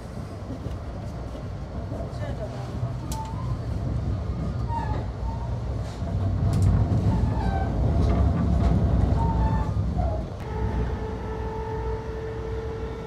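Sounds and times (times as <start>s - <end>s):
train wheels rumbling on rails: 0.0s - 13.0s
rail clicks: 0.4s - 10.5s.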